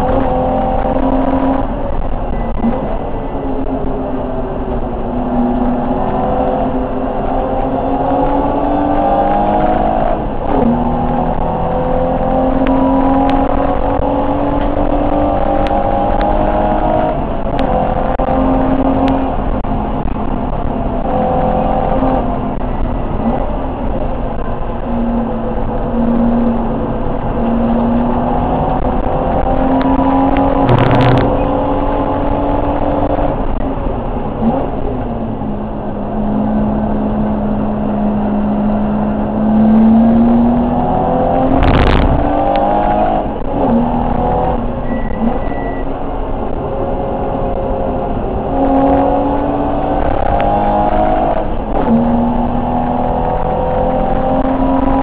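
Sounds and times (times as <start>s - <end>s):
car engine at racing revs: 0.0s - 55.0s
loud thump: 30.6s - 31.5s, 41.5s - 42.4s.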